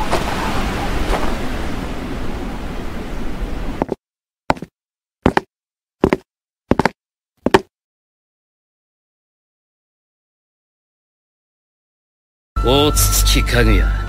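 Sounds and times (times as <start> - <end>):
blizzard wind: 0.0 - 3.9
footsteps: 3.8 - 7.7.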